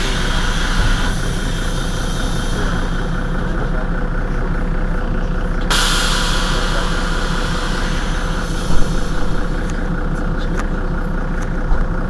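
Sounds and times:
compressed air hiss: 0.0s - 3.4s, 5.7s - 9.8s
bus engine idling: 0.0s - 12.0s
loud thump: 5.7s - 9.6s.

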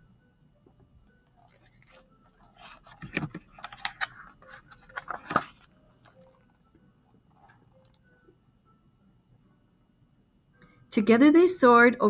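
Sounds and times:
paper pages rustling: 1.3s - 6.6s.

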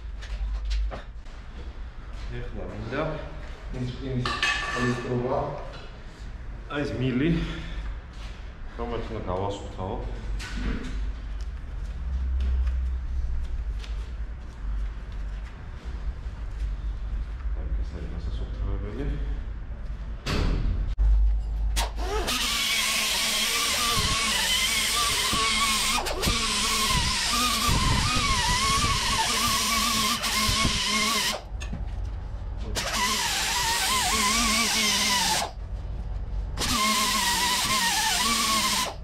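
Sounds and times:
air grinder whining on metal pipe: 21.8s - 31.5s, 32.8s - 35.6s, 36.6s - 39.0s.

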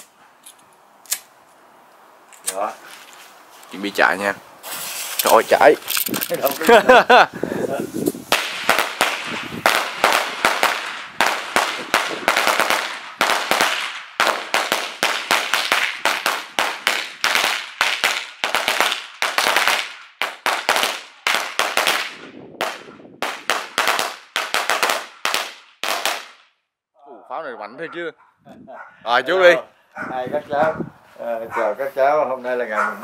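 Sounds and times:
firecrackers banging: 8.0s - 26.4s.

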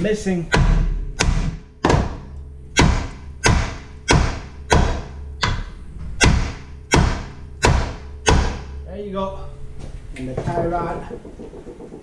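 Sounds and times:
hammer striking steel: 0.5s - 8.8s.

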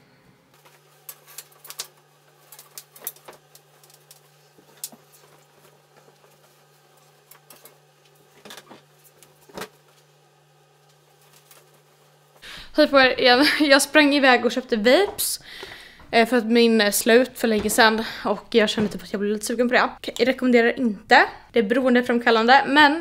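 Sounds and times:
cloth rustling: 0.6s - 12.5s.

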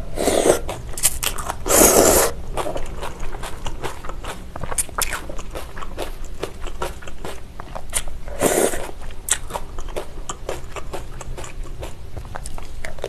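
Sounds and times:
slurping noodles from spoon: 0.2s - 0.8s, 1.6s - 2.4s, 8.3s - 8.9s
wet chewing clicks and crunches: 0.6s - 13.0s.

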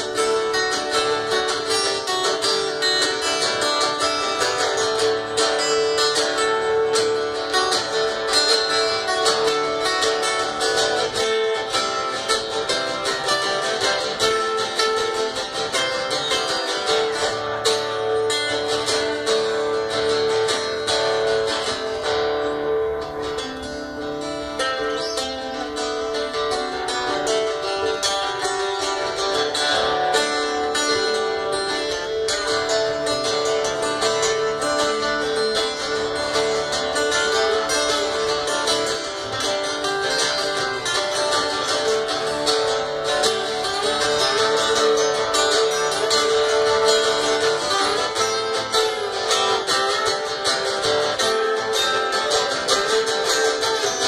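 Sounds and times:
acoustic guitars playing: 0.0s - 54.0s.

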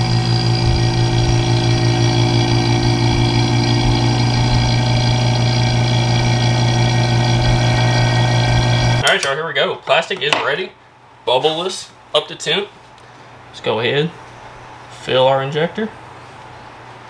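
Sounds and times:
vacuum pump humming: 0.0s - 9.3s.

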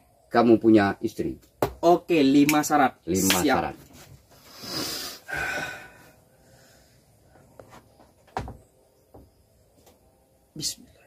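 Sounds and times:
breathy rush: 4.5s - 7.0s.

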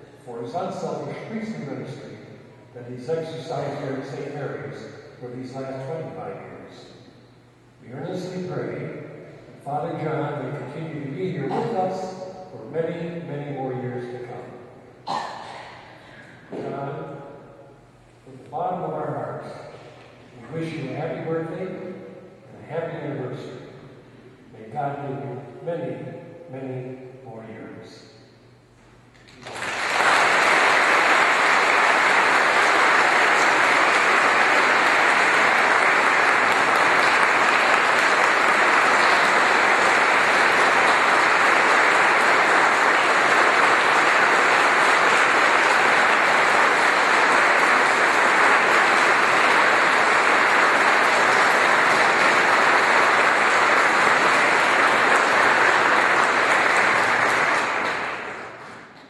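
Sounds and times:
congregation applauding: 29.2s - 59.0s.

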